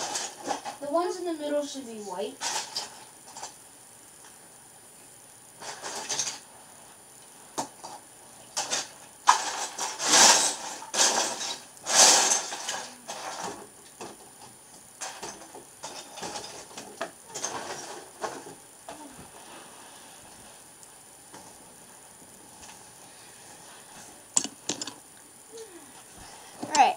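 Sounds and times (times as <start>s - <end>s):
plastic bricks clattering and clicking: 24.4s - 25.0s.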